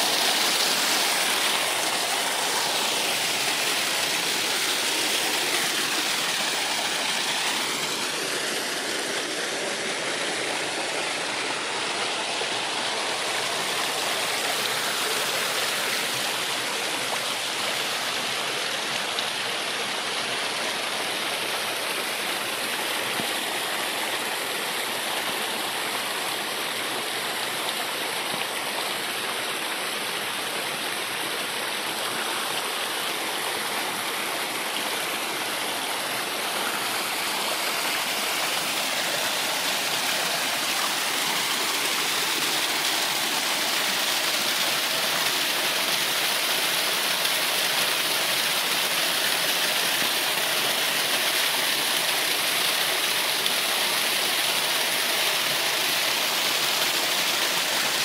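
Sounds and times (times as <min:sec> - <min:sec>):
water falling and splashing: 0:00.0 - 0:58.0.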